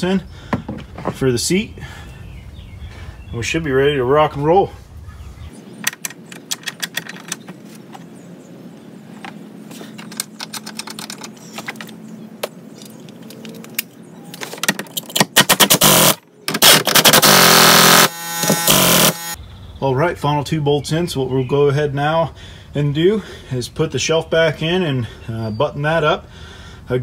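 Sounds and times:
cordless power driver bursts: 15.4 - 19.4.

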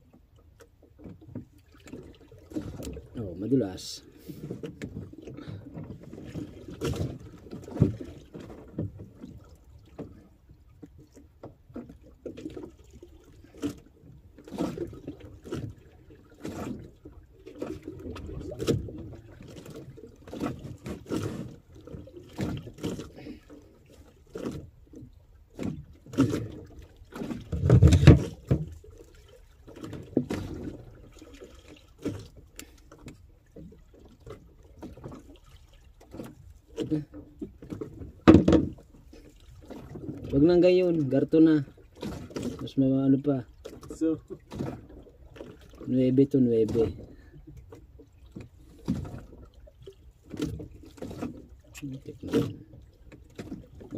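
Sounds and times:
water sloshing against boat hull: 0.0 - 53.9
knocks on wooden boat: 38.2 - 38.8.

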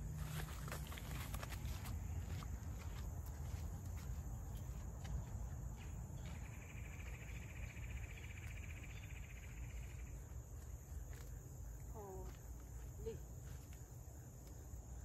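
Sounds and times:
footsteps through grass: 0.0 - 7.2.

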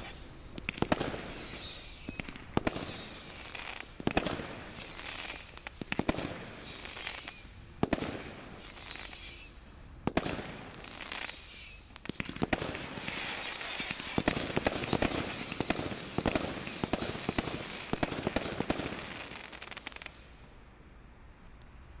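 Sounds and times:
firework crackling: 0.0 - 20.2
high wavering whistle: 1.2 - 3.9, 6.5 - 7.7, 8.5 - 9.7, 10.8 - 12.0.

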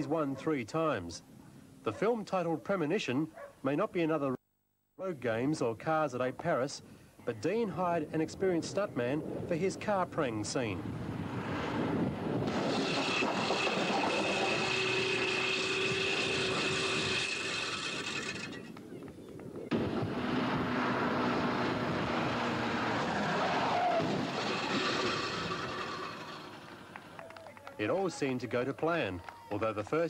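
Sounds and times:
steady whine: 12.4 - 18.8
cars driving by: 19.7 - 27.3.

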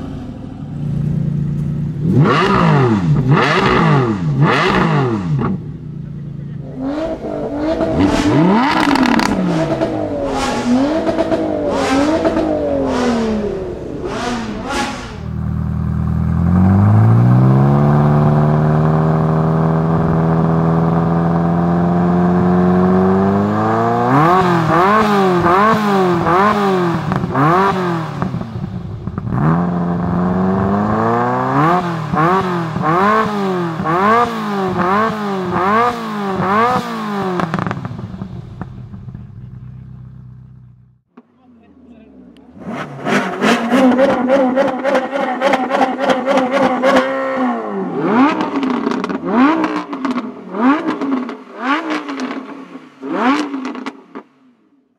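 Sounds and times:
sports car engine revving: 0.0 - 41.1, 41.8 - 54.3
second car engine idling and revving: 0.0 - 54.9.

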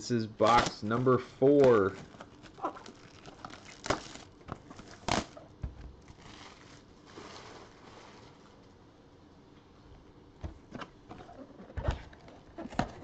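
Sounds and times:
plastic wrap crinkling: 0.4 - 8.6.

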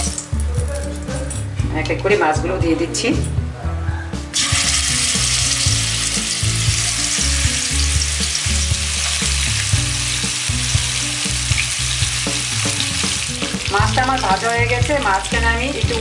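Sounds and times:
fish frying in hot oil: 4.4 - 16.0.

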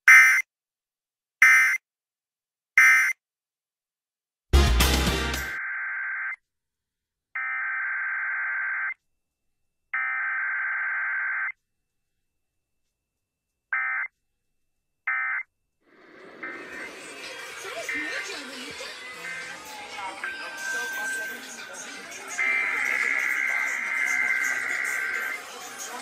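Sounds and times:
harsh buzzing data bursts: 16.2 - 26.0.

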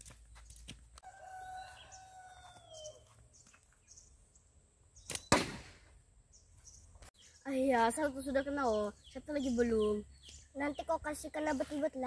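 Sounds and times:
rooster crowing: 1.0 - 3.2
slingshot snaps: 5.1 - 5.8.

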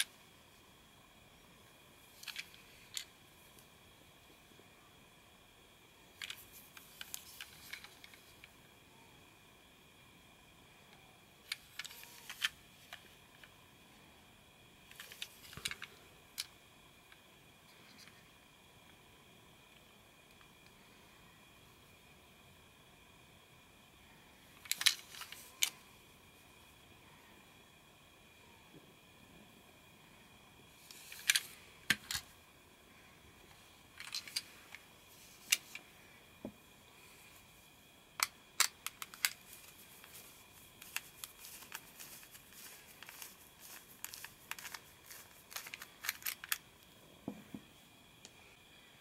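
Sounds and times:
plastic toy clicking and rubbing: 2.1 - 3.2, 6.1 - 8.6, 11.4 - 13.6, 14.9 - 18.2, 24.6 - 25.9, 30.8 - 32.3, 33.5 - 35.9, 38.2 - 46.7.

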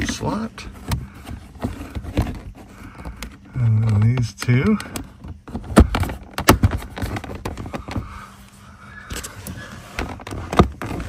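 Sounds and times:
plastic trim panel clicks and knocks: 3.0 - 8.0.

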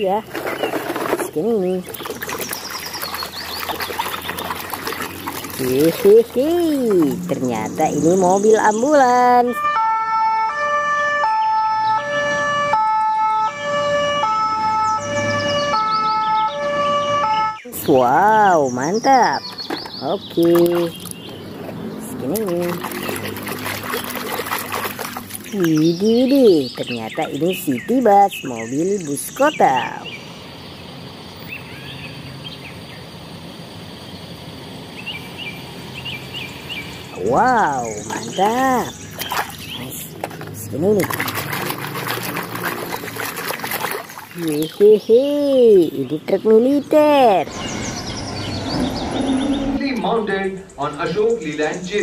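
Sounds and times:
small birds chirping: 0.0 - 9.6, 17.5 - 52.0
outdoor background noise: 0.0 - 52.0
two-tone ambulance siren: 9.3 - 17.8.

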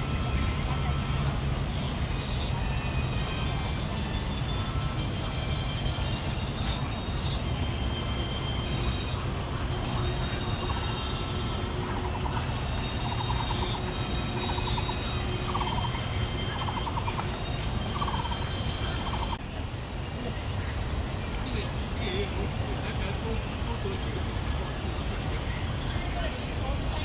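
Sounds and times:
city traffic rumble: 0.0 - 27.0
high chirps: 0.4 - 19.4
bird trilling: 11.8 - 19.4.

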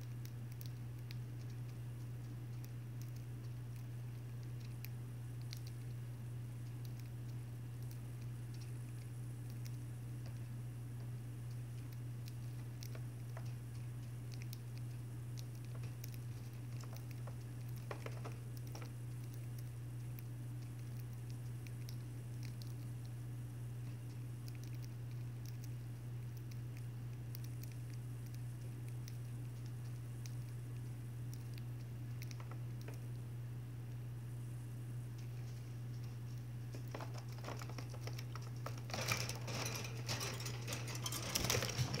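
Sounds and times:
birds pecking at seed: 0.0 - 42.0
steady low hum: 0.0 - 42.0
bird pecking seed in plastic cup: 35.2 - 42.0.

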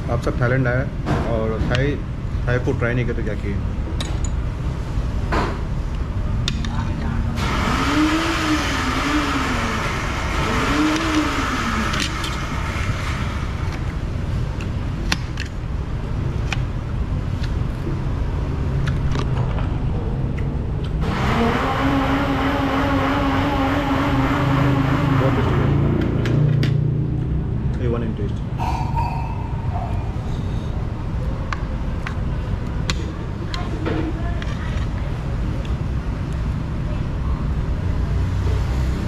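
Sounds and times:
steady engine hum: 0.0 - 39.0
engine rising and falling: 7.4 - 14.6, 18.1 - 31.2
continuous low rumble: 11.8 - 21.4, 25.1 - 38.1.

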